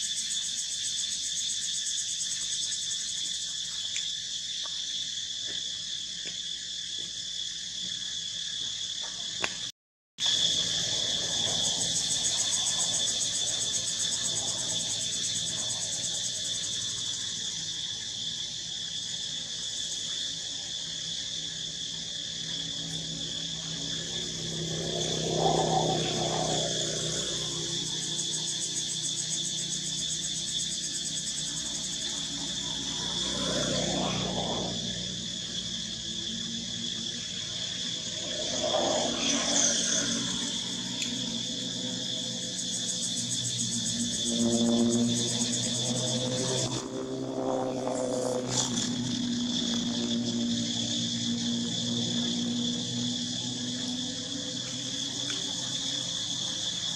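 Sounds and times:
insects chorus shrill drone: 0.0s - 56.9s
lower swelling sound: 43.5s - 53.6s.

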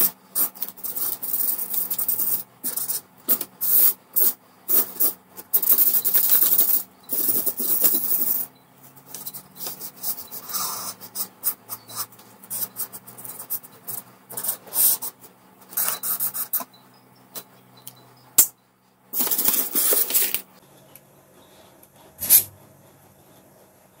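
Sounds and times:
marker scratching across paper: 9.0s - 16.6s.

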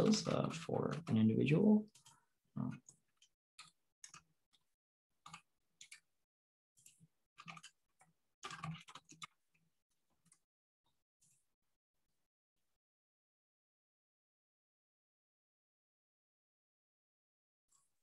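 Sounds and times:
faint keyboard typing: 0.0s - 6.1s, 6.8s - 9.4s.

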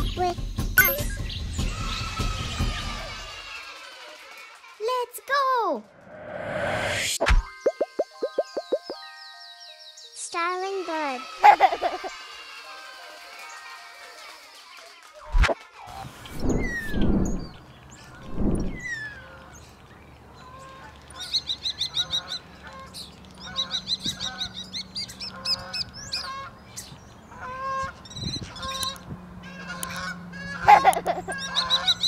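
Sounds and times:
low whooshing noises: 5.9s - 7.5s, 16.3s - 19.0s
starling singing: 7.7s - 10.0s.

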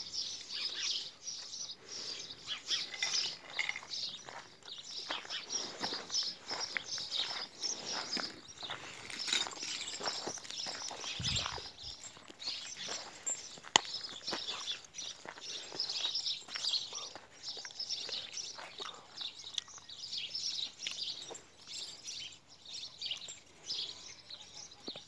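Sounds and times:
small birds chirping: 0.0s - 25.0s
footsteps crunching on stony track: 2.6s - 19.8s.

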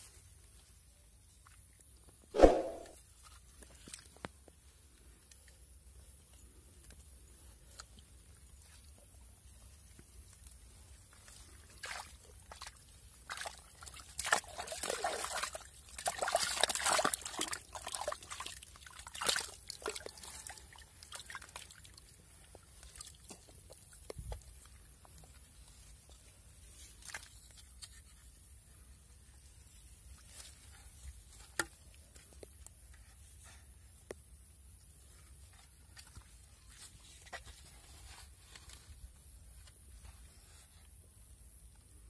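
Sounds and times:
hands squelching in wet mud: 10.3s - 28.0s.

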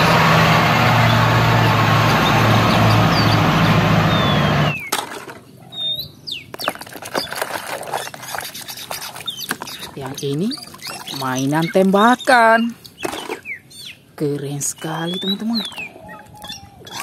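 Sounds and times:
bus engine running: 0.0s - 4.8s
water splashing in a basin: 6.6s - 12.0s.

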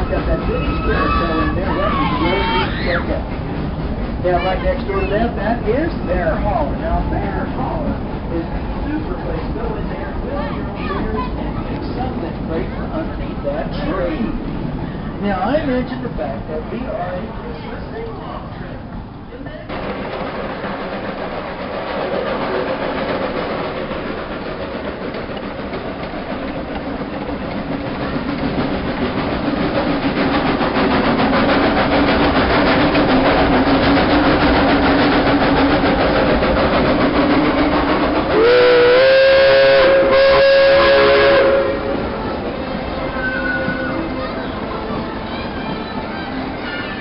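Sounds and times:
steam train rumbling: 0.0s - 47.0s
steam whistle blasts: 38.3s - 42.1s.

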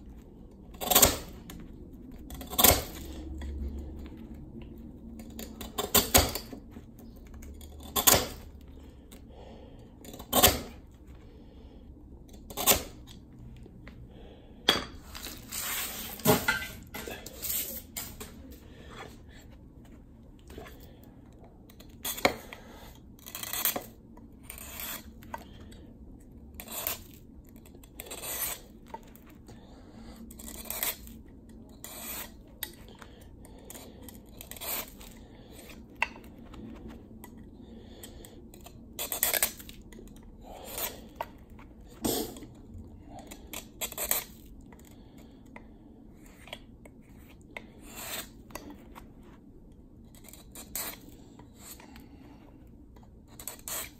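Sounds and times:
knife scraping ice: 0.7s - 1.4s, 2.3s - 3.2s, 7.6s - 8.4s, 10.1s - 10.8s, 12.4s - 13.1s, 21.7s - 25.6s, 26.5s - 27.2s, 27.8s - 28.8s, 30.2s - 32.8s, 33.6s - 36.1s, 38.2s - 39.8s, 40.5s - 41.2s, 43.4s - 44.5s, 46.2s - 48.4s, 50.1s - 51.9s, 53.3s - 53.9s.

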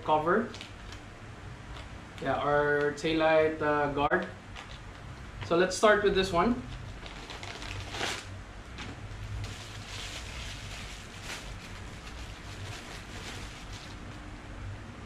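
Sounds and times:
low steady hum: 0.0s - 15.0s
plastic bag and bubble wrap crinkling: 0.4s - 1.0s, 6.6s - 14.3s.

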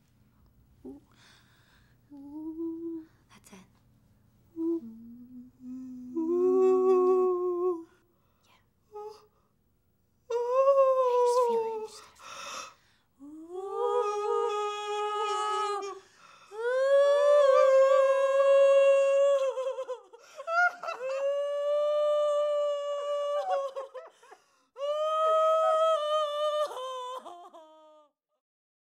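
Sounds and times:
women wailing in mourning: 13.2s - 28.1s.

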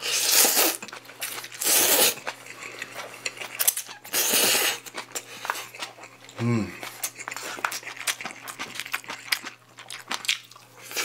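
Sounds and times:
slurping noodles: 0.0s - 4.9s.

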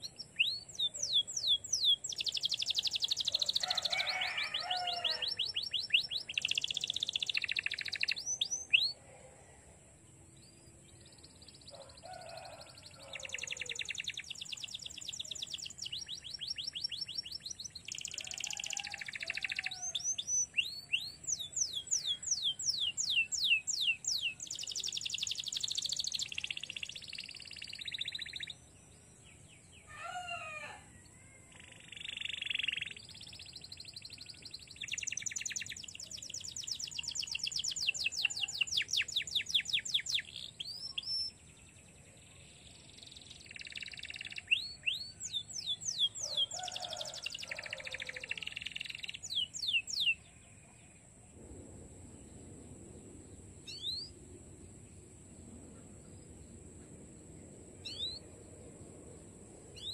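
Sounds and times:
canary singing: 0.0s - 9.0s, 11.8s - 28.6s, 43.5s - 50.2s.

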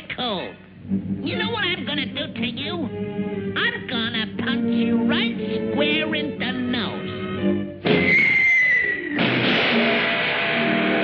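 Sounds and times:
cartoon background music: 0.8s - 9.5s.

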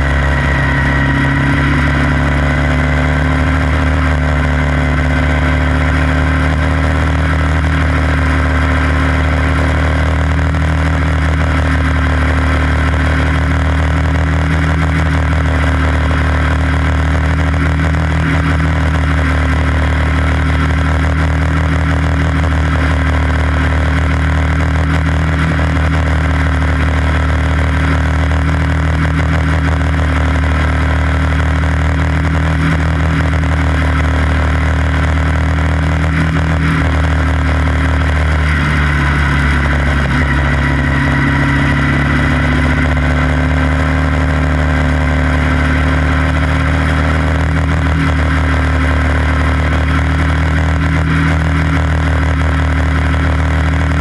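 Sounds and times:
race car engine running: 0.0s - 54.0s.

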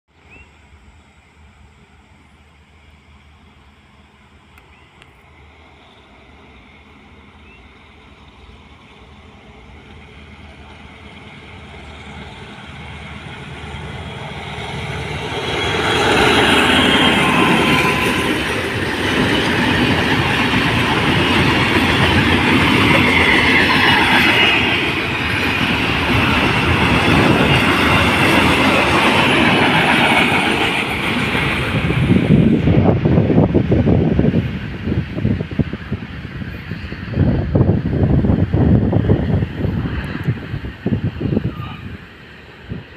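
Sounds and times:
diesel locomotive: 0.1s - 42.9s
train wheels clattering on rails: 9.8s - 42.0s.

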